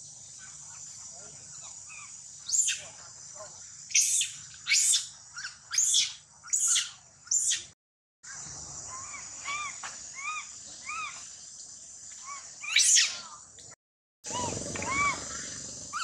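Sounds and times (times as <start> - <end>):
insect drone: 0.0 - 16.0
monkey screaming: 1.9 - 2.8, 3.9 - 7.7, 8.9 - 11.2, 12.2 - 13.4, 14.3 - 16.0.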